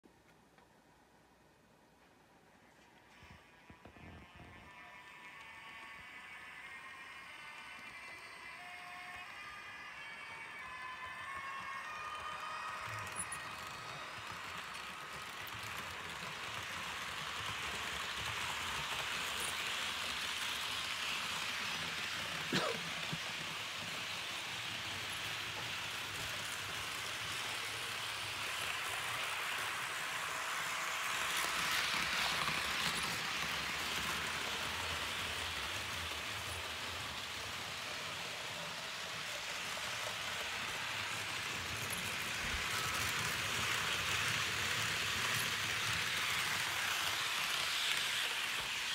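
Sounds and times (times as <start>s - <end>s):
model train wheels rattling: 11.6s - 48.9s.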